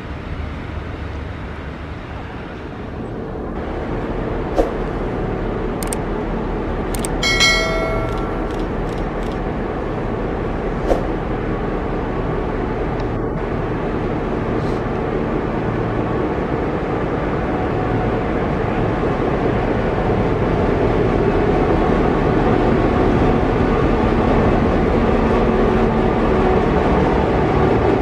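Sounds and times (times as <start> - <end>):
locomotive engine drone: 0.0 - 28.0
sharp clicks: 5.8 - 6.0, 6.9 - 9.4
metallic ring: 7.2 - 9.0.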